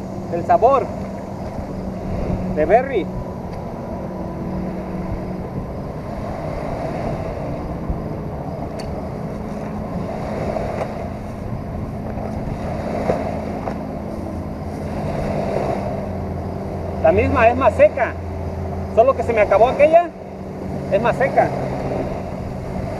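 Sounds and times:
low hum: 0:00.0 - 0:22.9
small waves washing ashore: 0:00.0 - 0:22.9
wind on microphone: 0:00.0 - 0:22.9.

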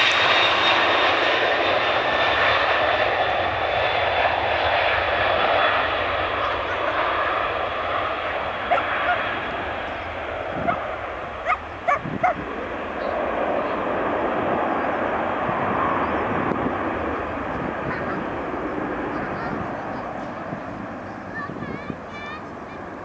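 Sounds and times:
jet engines at takeoff: 0:00.0 - 0:23.0.

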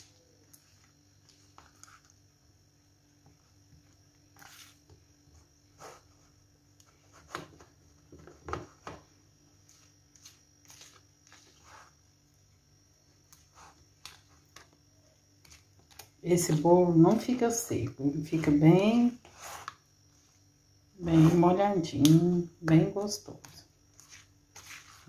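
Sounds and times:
spoon stirring batter: 0:00.0 - 0:02.2, 0:03.2 - 0:06.2, 0:09.6 - 0:12.0, 0:13.2 - 0:25.0.

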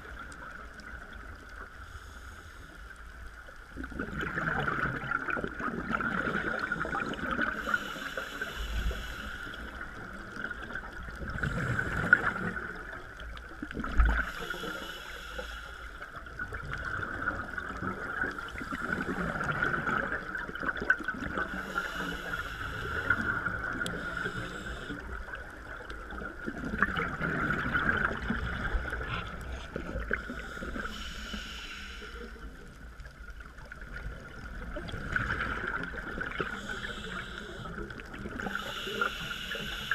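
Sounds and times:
diver breathing through regulator: 0:01.8 - 0:03.0, 0:06.8 - 0:09.9, 0:14.2 - 0:16.1, 0:21.4 - 0:25.2, 0:29.2 - 0:32.6, 0:36.3 - 0:39.9
bubbly exhale underwater: 0:03.9 - 0:07.6, 0:16.6 - 0:21.5, 0:26.1 - 0:30.6.

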